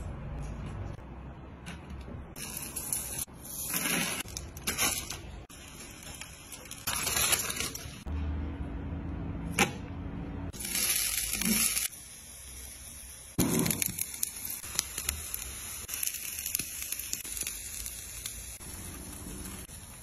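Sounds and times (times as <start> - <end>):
food and foil crinkling: 2.6 - 8.0.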